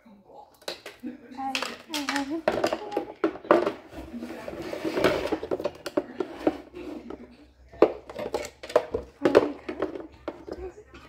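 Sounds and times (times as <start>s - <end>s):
containers clicking and knocking: 0.6s - 11.0s.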